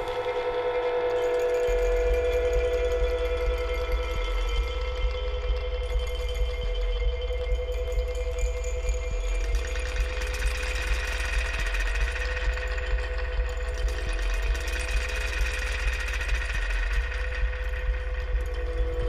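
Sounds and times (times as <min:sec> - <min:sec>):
droning machine-like music: 0:00.0 - 0:19.0.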